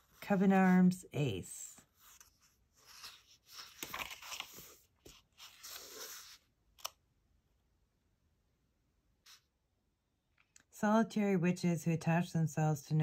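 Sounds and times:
paper pages rustling: 1.9s - 6.9s.

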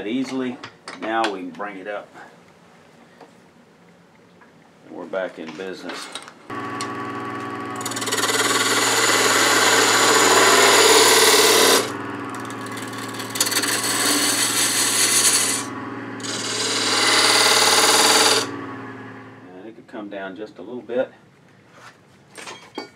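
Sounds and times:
lathe tool cutting wood: 6.5s - 19.4s
lathe low hum: 6.5s - 19.5s.

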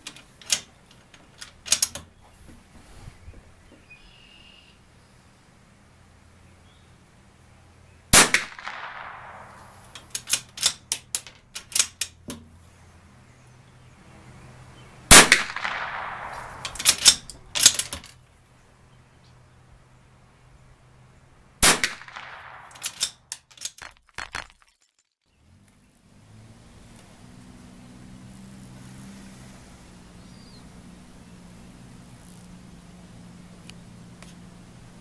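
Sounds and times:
rifle bolt clicking: 0.1s - 2.0s, 8.5s - 12.4s, 15.4s - 18.1s, 21.9s - 24.5s
rifle shots: 8.1s - 10.8s, 15.1s - 17.9s, 21.6s - 24.7s.

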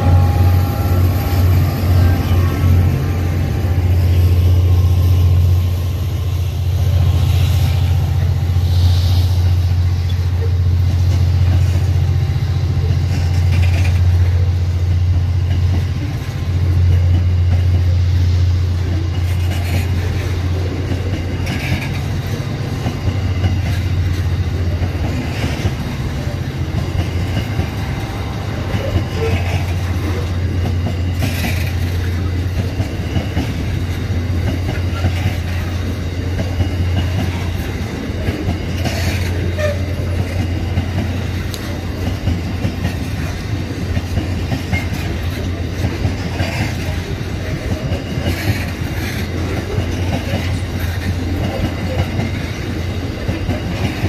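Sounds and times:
train rumbling past: 0.0s - 54.0s
wheels clicking over rail joints: 12.8s - 17.9s, 18.8s - 54.0s.

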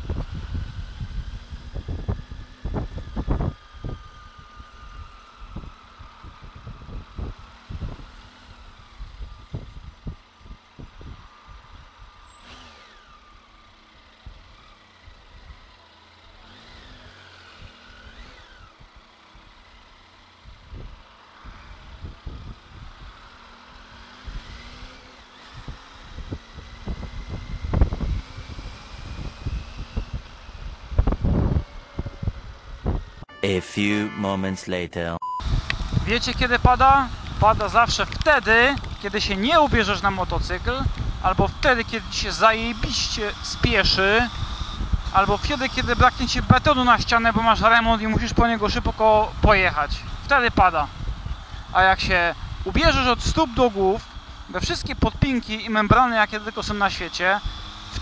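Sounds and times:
wind buffeting microphone: 0.0s - 12.1s, 20.4s - 23.2s, 25.4s - 33.2s, 35.4s - 55.4s
motorcycle engine revving: 0.0s - 33.3s, 35.4s - 58.0s
passing trucks and cars: 0.0s - 33.3s, 35.4s - 58.0s.

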